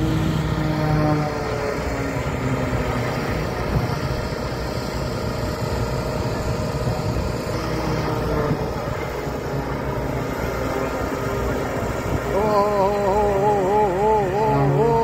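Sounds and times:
engine droning: 0.0s - 15.0s.

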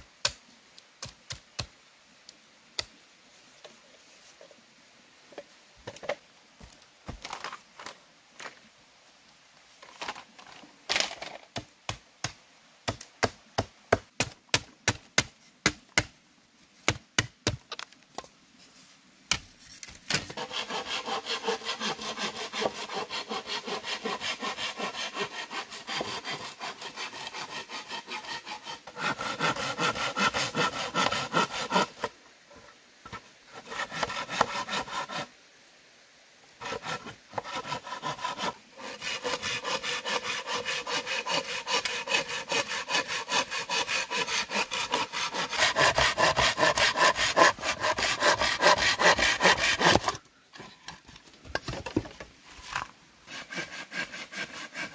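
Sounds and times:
hand saw sawing wood: 20.1s - 32.2s, 33.0s - 35.3s, 36.6s - 50.2s, 53.3s - 54.9s.

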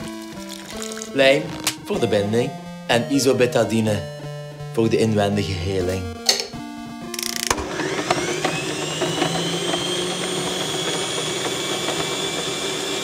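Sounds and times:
blender motor whine: 7.2s - 13.0s.

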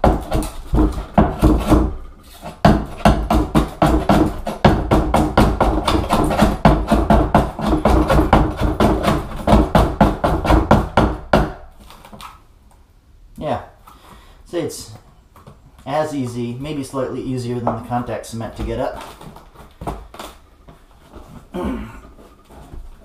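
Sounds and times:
hand scraper scraping tile: 0.0s - 11.0s.

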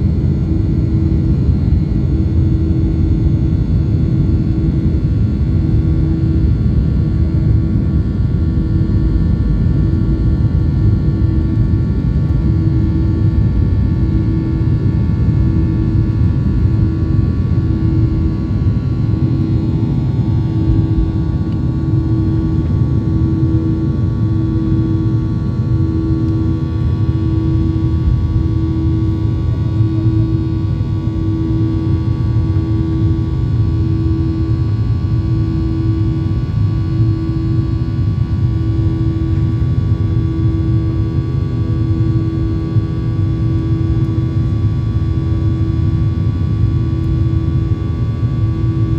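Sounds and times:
jet engines rumbling: 17.6s - 31.7s.

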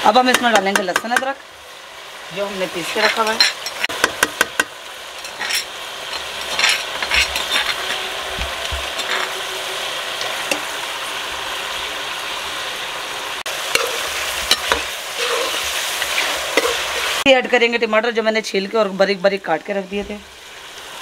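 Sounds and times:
meat sizzling in hot fat: 0.0s - 21.0s
metal ladle scraping pot: 5.2s - 9.4s, 13.7s - 17.2s.

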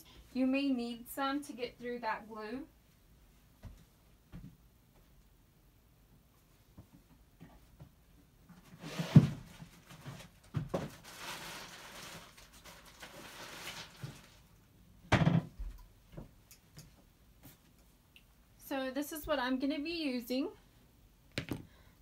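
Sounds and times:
rustling and rummaging: 8.5s - 14.6s.

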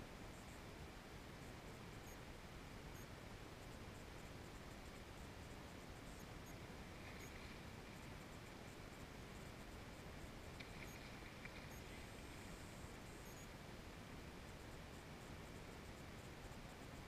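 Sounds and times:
faint steady hiss: 0.0s - 17.0s
faint scratchy ticks: 3.7s - 13.5s.

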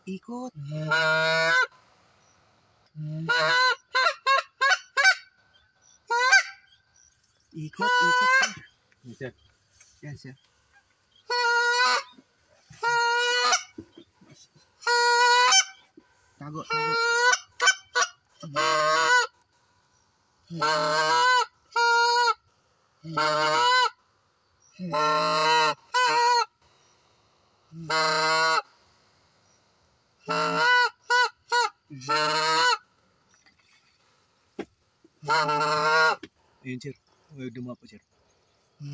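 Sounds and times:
goose honking: 0.5s - 1.8s, 3.0s - 5.4s, 6.1s - 6.7s, 7.6s - 8.7s, 11.2s - 15.8s, 16.4s - 19.4s, 20.5s - 22.4s, 23.0s - 24.0s, 24.8s - 26.5s, 27.8s - 28.7s, 30.2s - 32.9s, 35.2s - 36.3s
goose clucks: 2.9s - 5.4s, 7.7s - 8.7s, 10.8s - 19.4s, 20.5s - 22.4s, 27.8s - 28.7s, 30.2s - 33.8s, 35.1s - 36.4s.

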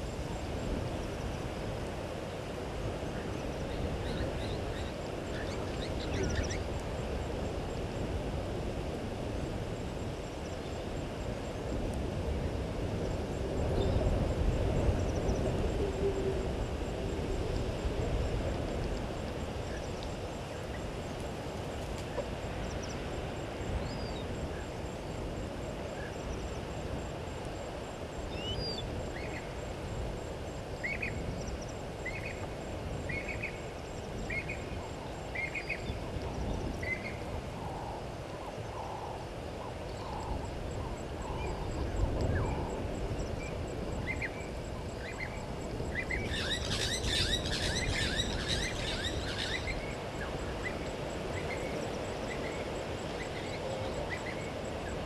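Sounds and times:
bird calling: 46.0s - 50.0s.

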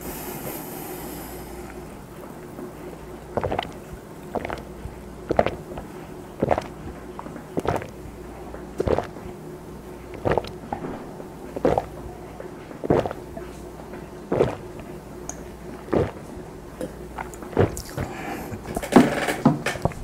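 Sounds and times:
person gulping a drink: 3.0s - 7.0s, 7.6s - 8.0s, 8.8s - 9.3s, 10.1s - 12.0s, 12.8s - 13.4s, 14.3s - 20.0s.

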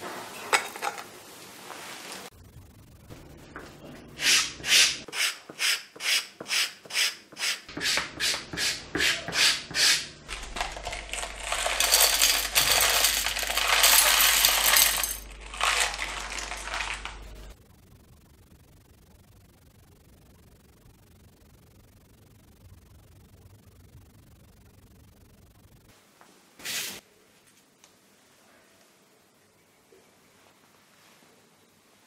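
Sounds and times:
small nails rattling into metal dish: 10.3s - 17.4s.

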